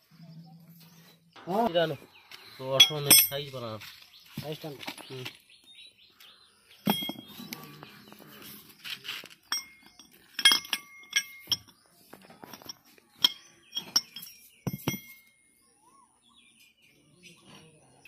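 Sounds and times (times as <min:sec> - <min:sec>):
steel parts clinking: 0:02.7 - 0:03.6, 0:06.8 - 0:07.4, 0:09.0 - 0:11.8, 0:12.4 - 0:15.3.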